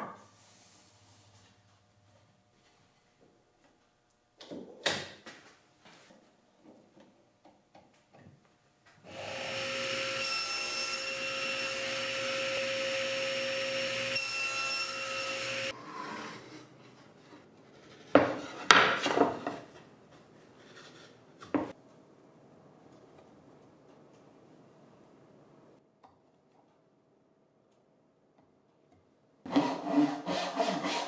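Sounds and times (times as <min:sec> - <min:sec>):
table saw whining: 0:09.1 - 0:16.6.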